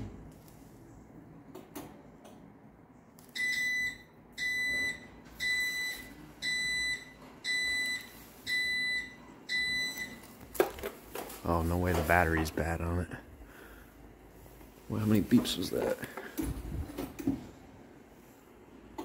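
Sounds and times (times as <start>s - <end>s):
garage door opener beeping: 3.4s - 10.2s.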